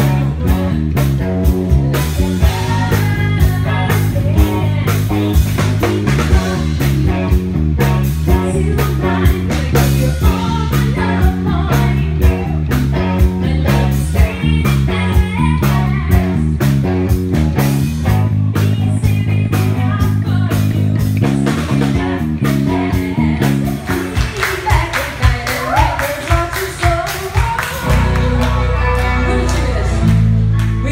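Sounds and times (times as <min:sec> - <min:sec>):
drum kit: 0:00.0 - 0:30.9
electric bass line: 0:00.0 - 0:30.9
electric guitar: 0:00.0 - 0:30.9
woman singing into microphone: 0:01.9 - 0:05.6, 0:08.3 - 0:16.5, 0:18.6 - 0:23.8.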